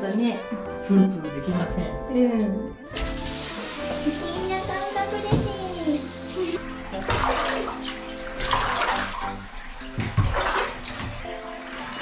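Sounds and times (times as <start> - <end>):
bathwater splashing and pouring: 2.9 - 12.0.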